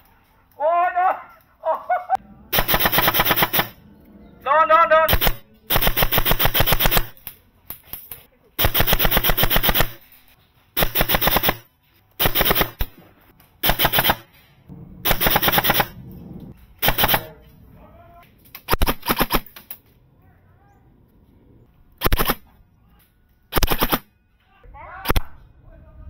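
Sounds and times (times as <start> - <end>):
full-auto gunfire bursts: 2.5 - 3.8, 5.1 - 7.3, 8.6 - 10.0, 10.8 - 13.0, 13.6 - 14.3, 15.0 - 16.0, 16.8 - 17.3, 18.7 - 19.5, 22.0 - 22.4, 23.5 - 24.1.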